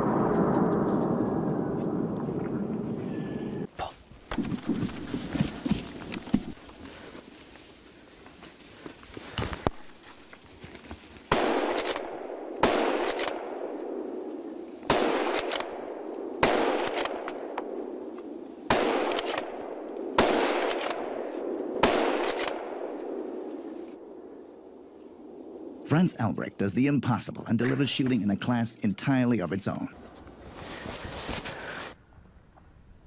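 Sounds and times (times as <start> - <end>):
rifle shots echoing: 11.3 - 25.8.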